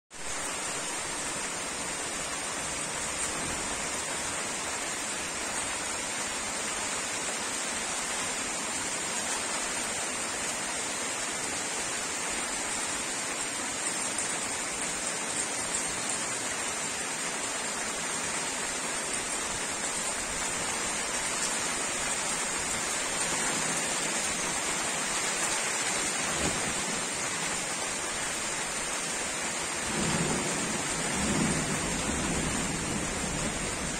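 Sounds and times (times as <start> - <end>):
heavy rain pouring: 0.1 - 33.9.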